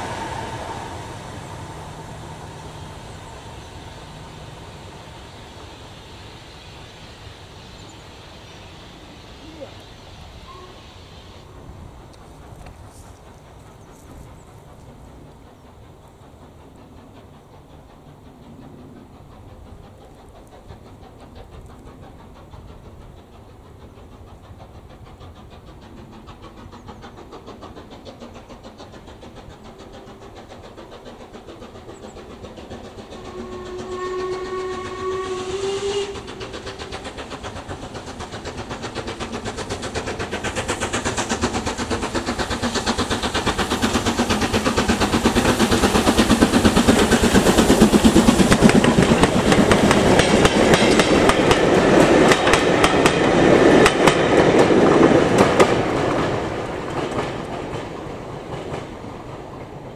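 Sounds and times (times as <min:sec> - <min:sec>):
steam locomotive exhaust beats: 0:00.0 - 0:59.9
steam whistle: 0:10.4 - 0:11.5, 0:33.1 - 0:36.5.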